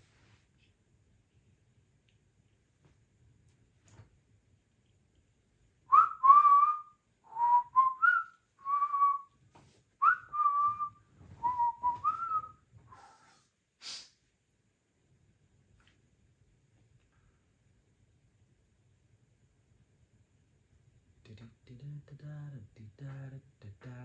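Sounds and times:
man whistling a tune: 0:05.9 - 0:09.3, 0:10.0 - 0:12.6
brief hiss: 0:12.9 - 0:14.2.

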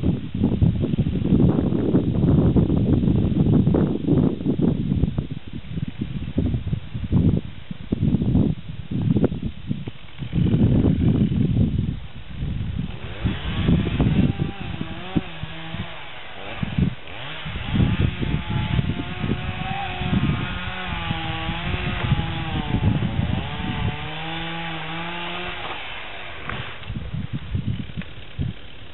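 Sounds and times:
chainsaw cutting wood: 0:09.8 - 0:11.6, 0:12.4 - 0:28.9.

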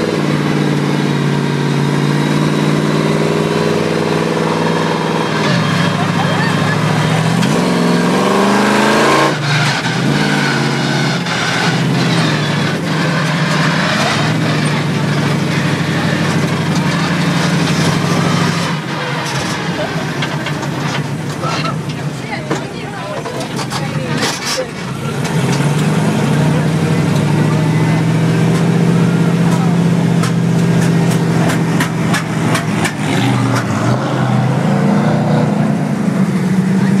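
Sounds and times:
truck engine revving: 0:00.0 - 0:37.0.

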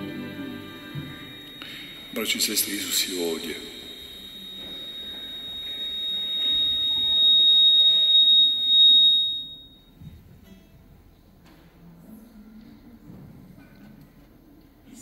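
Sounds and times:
steady high-pitched tone: 0:00.0 - 0:10.0.

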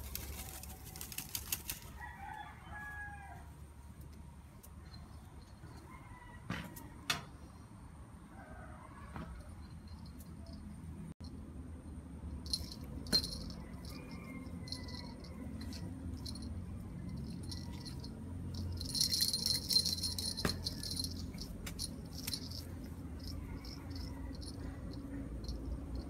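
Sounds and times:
wire cage jingling and rattling: 0:12.5 - 0:26.0.

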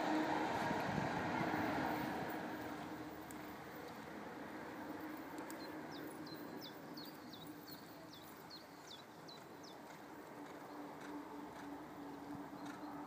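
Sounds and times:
songbird singing: 0:04.9 - 0:13.0.

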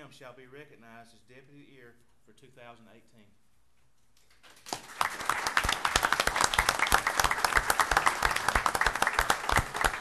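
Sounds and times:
small group clapping: 0:04.3 - 0:10.0.

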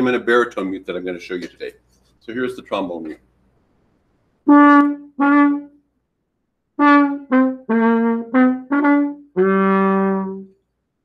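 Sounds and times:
muted trombone notes: 0:04.5 - 0:05.8, 0:06.8 - 0:10.5.

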